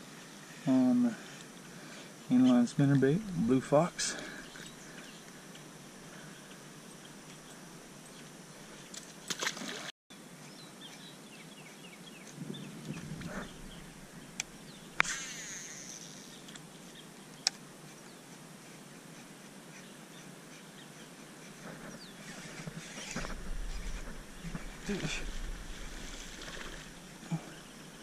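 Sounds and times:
faint birds chirping: 0.0s - 9.0s, 10.1s - 28.0s
reel spool whirring: 22.1s - 27.2s.

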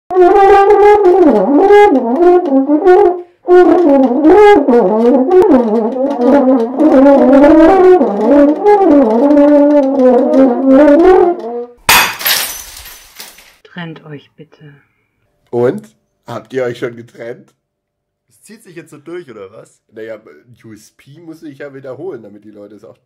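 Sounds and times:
solo brass melody: 0.1s - 11.8s.

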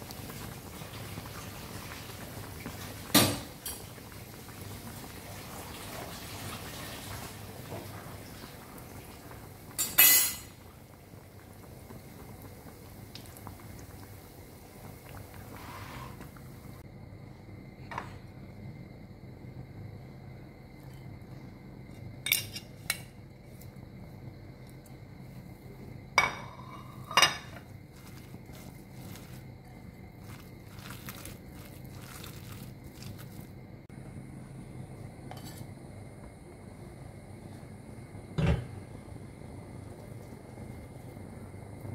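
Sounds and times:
food sizzling in hot oil: 0.0s - 16.8s, 26.2s - 33.9s
ceramic dishes clinking: 26.2s - 27.6s
food squelching mashed by hand: 30.1s - 33.5s.

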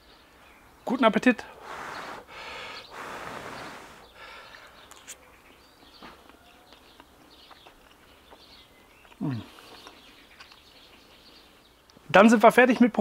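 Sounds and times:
faint birdsong: 0.0s - 13.0s
quiet eating sounds: 2.9s - 12.0s.

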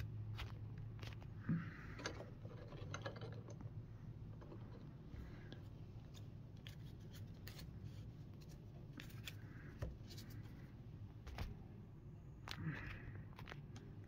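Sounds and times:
low steady hum: 0.0s - 14.0s
cards clicking and rustling: 6.0s - 10.6s.

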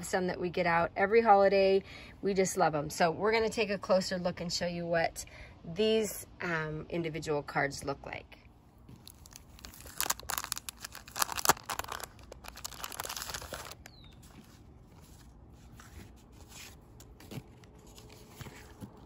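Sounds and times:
card rustling: 9.0s - 19.0s
plastic sleeve crinkling and tearing: 9.0s - 19.0s.

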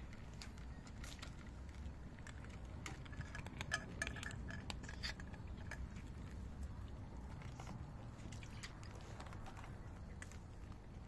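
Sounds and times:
cat food clinking into a dish: 2.8s - 6.0s.

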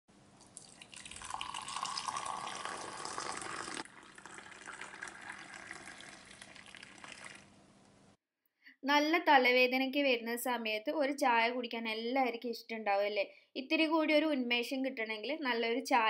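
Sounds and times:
tea pouring into a glass mug: 0.4s - 7.6s.

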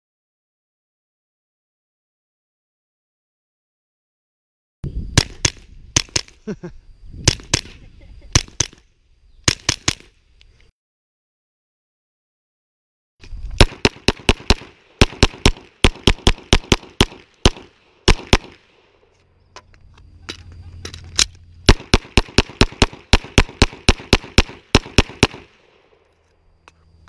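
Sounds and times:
pistol shots fired rapidly: 13.6s - 18.7s, 21.7s - 25.6s.

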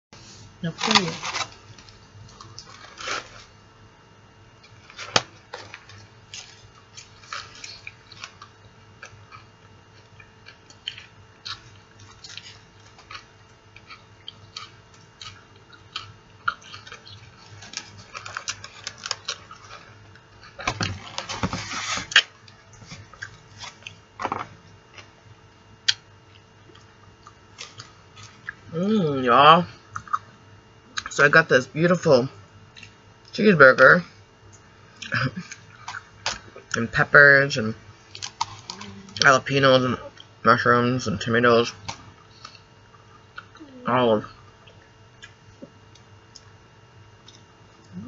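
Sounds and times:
biting and chewing food: 4.6s - 25.2s, 35.0s - 36.8s, 38.1s - 39.3s.

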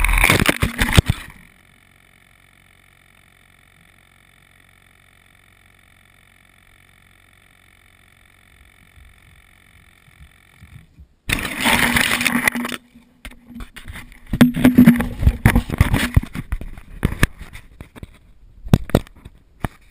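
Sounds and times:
faint steady hum: 0.0s - 19.9s
camera being handled: 10.6s - 19.9s.

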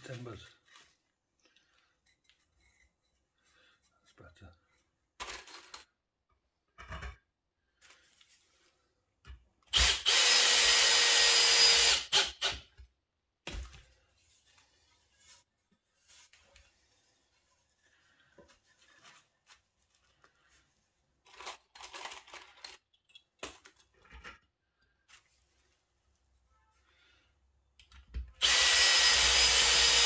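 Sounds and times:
cordless drill drilling into wood: 9.7s - 12.6s, 28.4s - 30.0s
screws rattling in a box: 21.2s - 23.0s.

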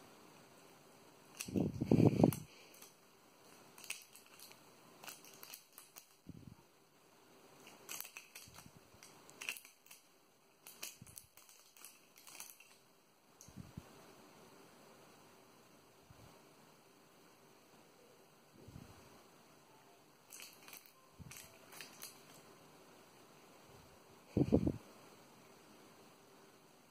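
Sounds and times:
cat chewing crinkly plastic: 1.3s - 6.3s, 7.6s - 10.0s, 10.6s - 12.8s, 20.3s - 22.4s.

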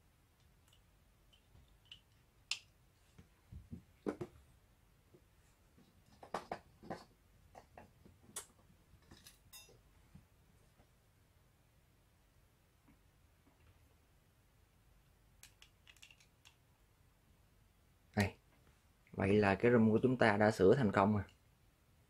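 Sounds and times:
clicks and knocks of handling: 15.4s - 16.6s.

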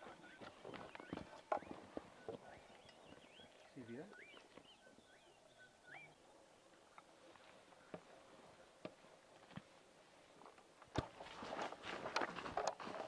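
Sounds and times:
footsteps on stony ground: 0.0s - 4.8s, 8.8s - 13.0s.

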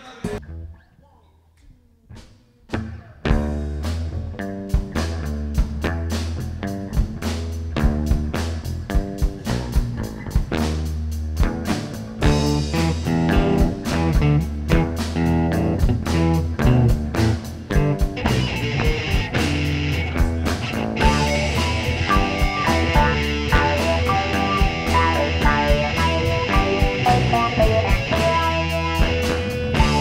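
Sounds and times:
rock band playing: 2.7s - 30.0s
electric guitar riff: 11.4s - 30.0s
higher melody line: 21.0s - 30.0s.

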